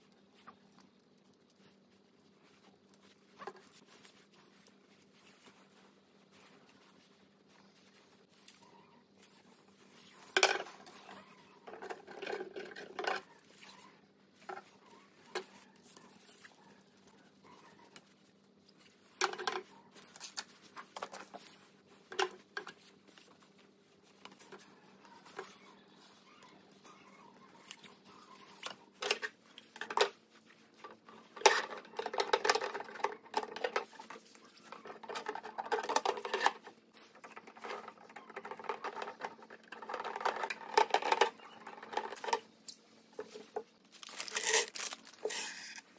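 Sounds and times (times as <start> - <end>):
screwdriver rattling and scraping: 10.0 - 13.4, 30.8 - 45.9.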